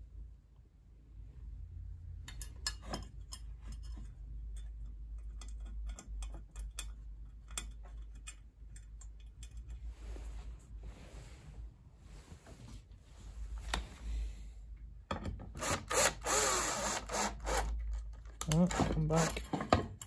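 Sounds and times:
small metal clicks and taps: 0:02.2 - 0:09.8
soft rustle: 0:09.6 - 0:14.6.

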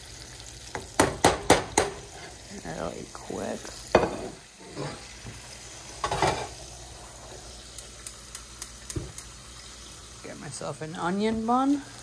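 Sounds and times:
fish sizzling in hot fat: 0:00.0 - 0:12.0
skillet knocking on grate: 0:00.7 - 0:02.1.

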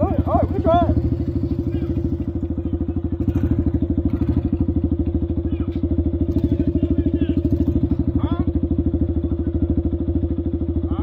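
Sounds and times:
engine idling putter: 0:00.0 - 0:11.0.

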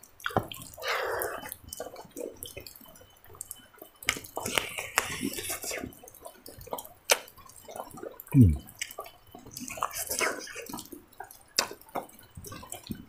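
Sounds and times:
person chewing with mouth open: 0:00.2 - 0:02.8, 0:04.0 - 0:13.0.

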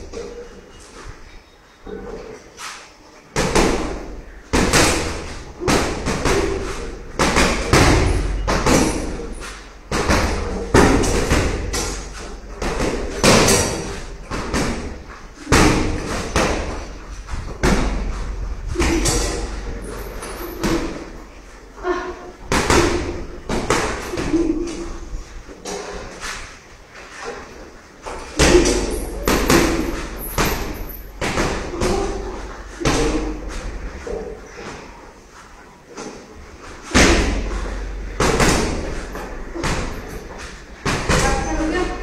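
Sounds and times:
blows thudding into punching bag: 0:09.9 - 0:19.6.

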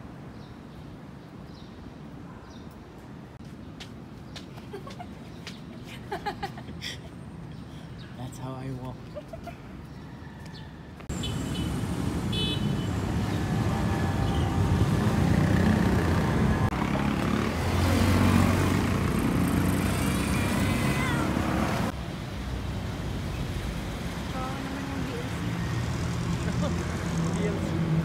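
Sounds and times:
horn toots: 0:11.1 - 0:13.2
motorcycles passing: 0:11.1 - 0:22.9, 0:23.5 - 0:28.0.

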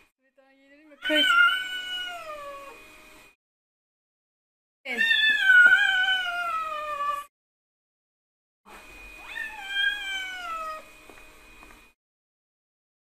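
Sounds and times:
cat meowing: 0:01.0 - 0:02.7, 0:04.9 - 0:07.3, 0:09.2 - 0:10.9.

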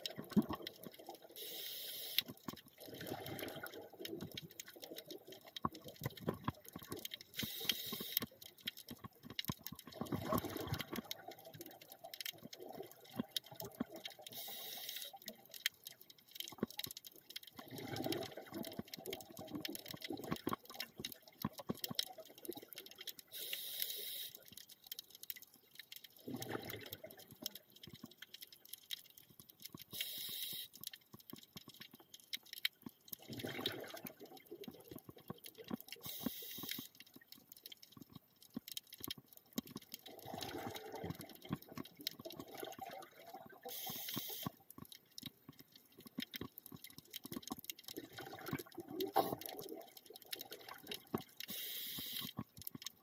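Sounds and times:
regulator breathing hiss: 0:01.4 - 0:02.2, 0:07.4 - 0:08.2, 0:14.4 - 0:15.1, 0:23.4 - 0:24.3, 0:30.0 - 0:30.7, 0:36.1 - 0:36.9, 0:43.7 - 0:44.4, 0:51.5 - 0:52.3
gurgling exhaled bubbles: 0:02.8 - 0:07.1, 0:09.8 - 0:14.4, 0:17.6 - 0:22.9, 0:26.2 - 0:27.6, 0:33.2 - 0:36.3, 0:40.0 - 0:44.5, 0:47.9 - 0:52.4.

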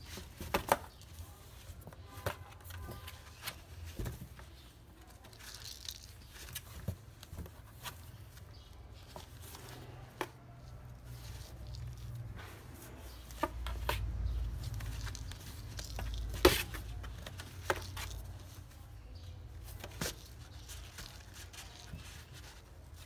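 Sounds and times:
light scratching on cardboard: 0:06.0 - 0:23.0.

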